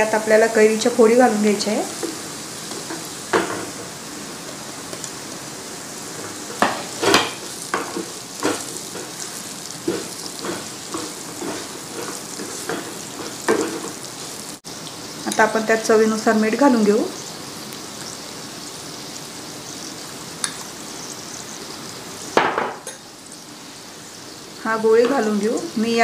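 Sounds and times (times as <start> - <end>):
food sizzling in hot oil: 0.0 - 26.0
spatula scraping a pan: 6.0 - 14.6.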